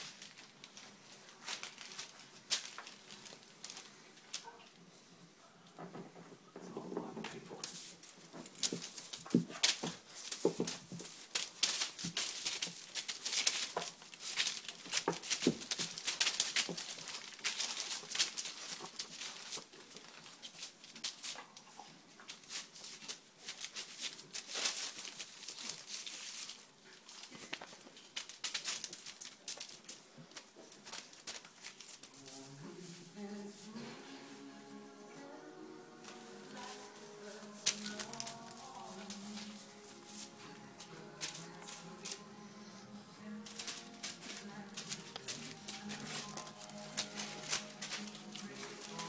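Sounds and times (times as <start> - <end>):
puppies scrabbling on plastic: 5.8 - 32.2, 36.1 - 42.2, 43.4 - 49.0.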